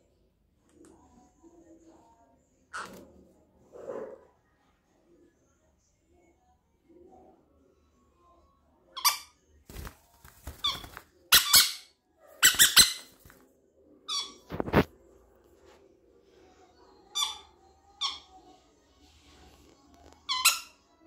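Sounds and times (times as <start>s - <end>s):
parrots squawking: 2.7s - 3.0s, 10.6s - 13.1s, 14.1s - 14.6s, 17.1s - 18.5s, 20.2s - 20.8s.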